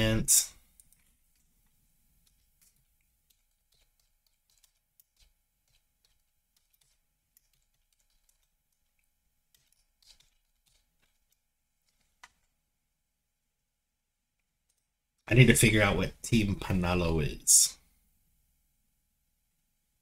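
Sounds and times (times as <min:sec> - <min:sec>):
keyboard typing: 0:00.7 - 0:01.5, 0:02.2 - 0:12.6.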